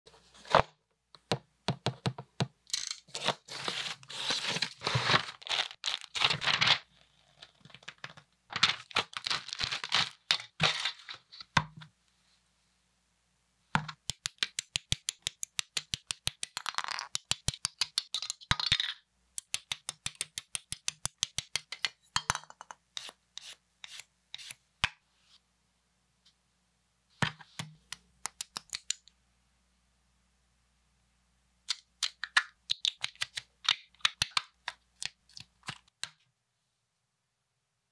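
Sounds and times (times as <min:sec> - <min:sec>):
plastic rustling and tearing: 0:03.1 - 0:11.3.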